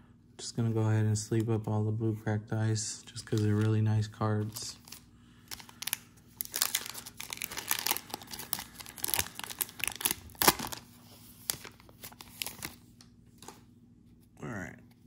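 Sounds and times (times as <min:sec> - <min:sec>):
plastic packaging crinkling: 0:03.1 - 0:13.6.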